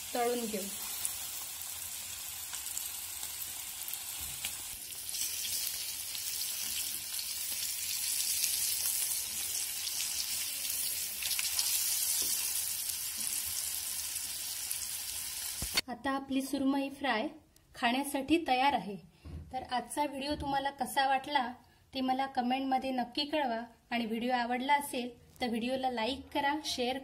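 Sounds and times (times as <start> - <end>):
fish sizzling in oil: 0.0 - 15.8.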